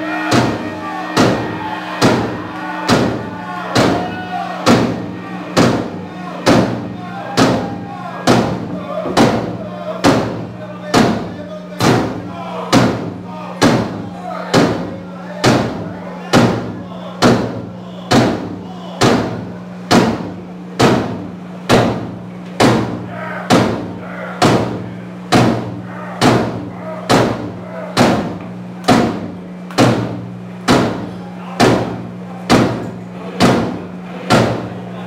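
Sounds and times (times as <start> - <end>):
heavy rock band playing: 0.0 - 9.6
low bass drone: 0.0 - 10.8
big drum hits ringing: 0.0 - 32.8.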